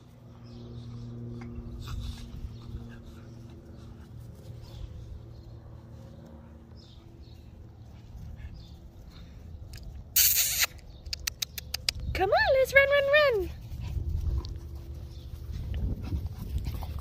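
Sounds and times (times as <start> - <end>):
sharp clicks: 9.7 - 12.1.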